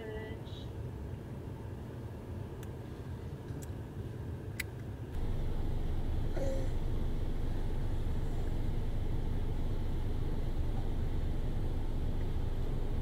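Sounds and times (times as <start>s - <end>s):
car engine idling: 5.2s - 13.0s.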